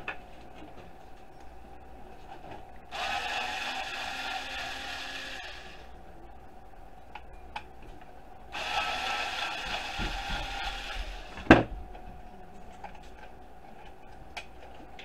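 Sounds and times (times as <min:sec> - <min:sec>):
electric screwdriver whirring: 0:02.9 - 0:05.8, 0:08.6 - 0:11.3.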